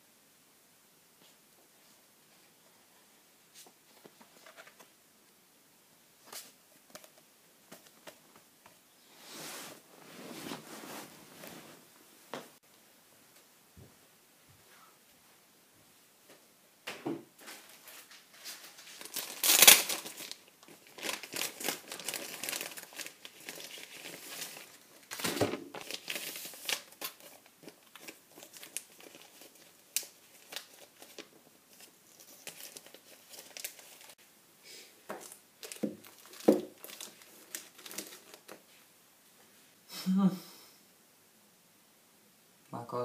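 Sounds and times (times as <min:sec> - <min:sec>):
paper rustling and crinkling: 0:03.6 - 0:04.9, 0:17.4 - 0:34.2, 0:35.2 - 0:38.8.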